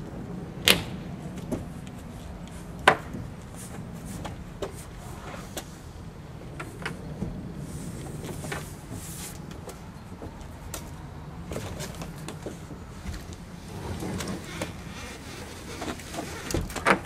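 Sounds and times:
steady low hum: 0.0 - 16.6
kayak scraping on roof rack: 13.6 - 17.0.

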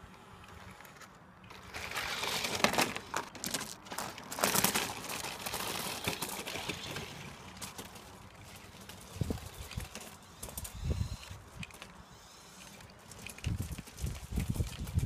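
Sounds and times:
toy truck tyres crunching gravel: 0.0 - 15.0.

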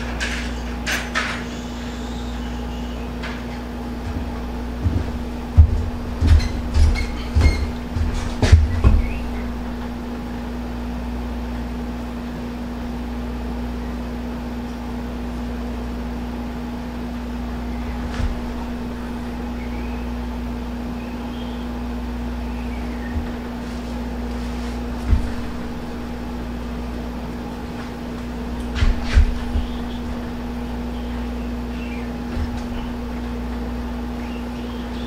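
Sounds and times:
machine hum: 0.0 - 35.0
soft knocks: 4.0 - 10.3, 23.1 - 31.2.

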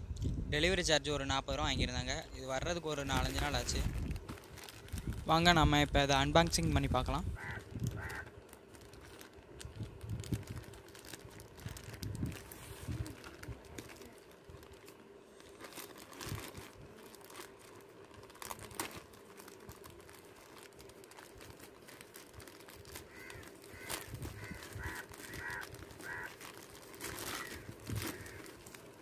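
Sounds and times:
plastic bag crinkling and tearing: 2.6 - 29.0
crows cawing: 7.4 - 8.4, 22.9 - 28.7.

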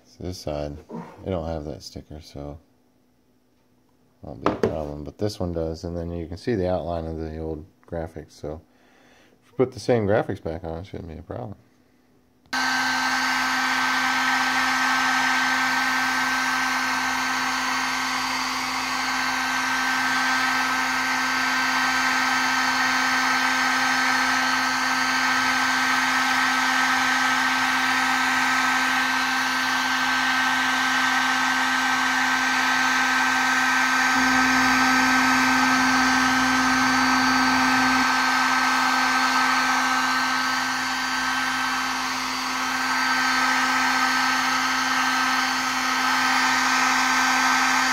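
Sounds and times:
heat gun fan humming: 4.3 - 5.0, 12.5 - 47.9.

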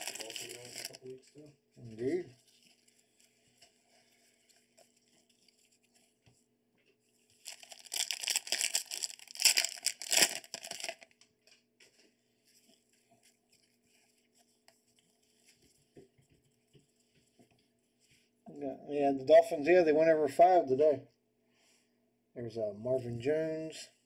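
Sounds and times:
cards rustling: 0.0 - 1.0, 7.3 - 11.2
wrapper tearing and crinkling: 0.0 - 1.0, 7.4 - 11.2.

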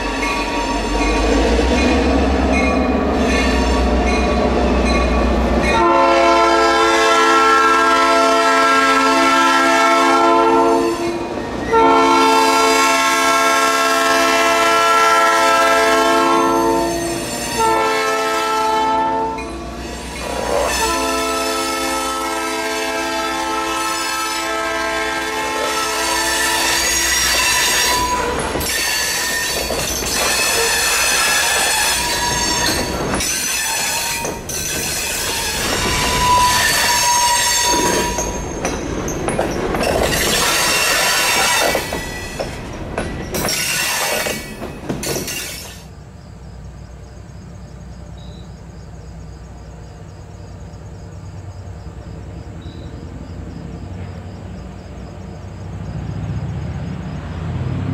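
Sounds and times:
train wheels screeching: 0.0 - 7.4, 15.7 - 46.0
locomotive horn: 0.4 - 4.5, 5.6 - 19.8, 20.4 - 34.4, 35.0 - 38.3
clatter over rail joints: 26.6 - 37.0, 37.6 - 45.9.

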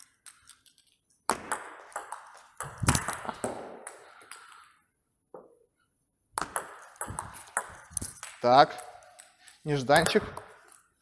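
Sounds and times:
table tennis ball hitting rackets: 1.2 - 4.7, 6.4 - 10.9
ball bouncing on table: 1.3 - 4.0, 6.4 - 9.3.

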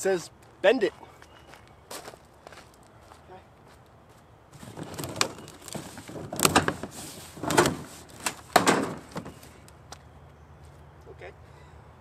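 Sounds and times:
cardboard scraping and crackling: 4.6 - 9.5.

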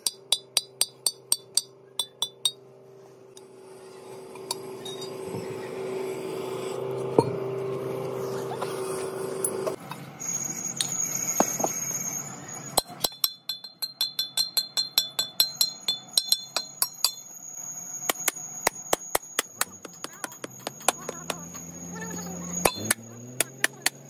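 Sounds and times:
hammer striking ringing iron drum: 0.0 - 2.6.

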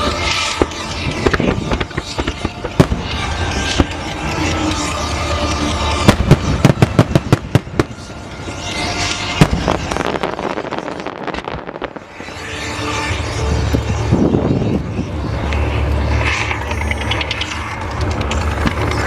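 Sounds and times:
fireworks cracking: 0.0 - 13.2
low rush of ground mines: 0.0 - 19.0.

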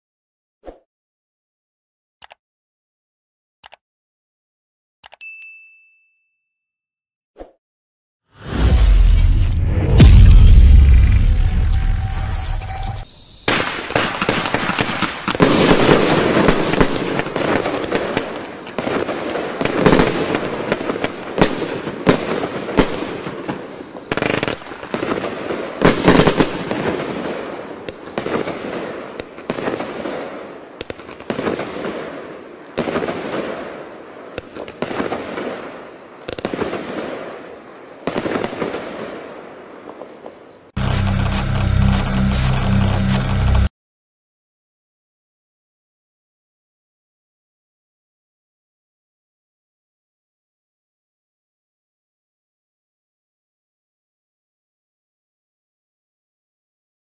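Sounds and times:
firework cake shots and bursts: 8.4 - 18.4.

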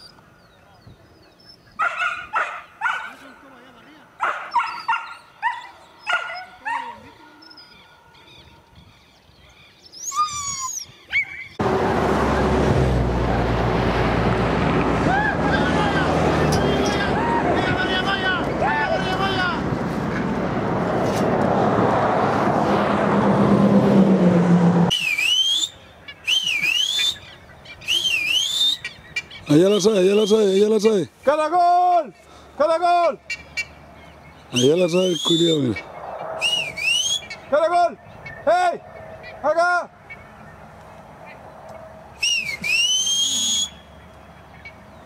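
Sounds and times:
dogs yelping and barking: 1.4 - 3.2, 4.2 - 8.7, 9.8 - 11.6, 40.0 - 42.1
dog whining cry: 4.2 - 8.2, 9.9 - 11.6
wind noise on microphone: 8.3 - 9.5, 10.1 - 11.8, 17.3 - 23.9
person whistling: 24.9 - 27.2, 27.9 - 28.8, 36.4 - 37.3, 42.2 - 43.8.

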